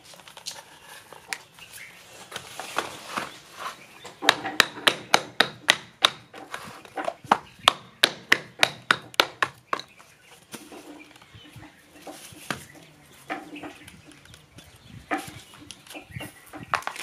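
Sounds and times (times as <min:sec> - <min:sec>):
wooden block knocking on cardboard tubes: 0:04.2 - 0:10.0.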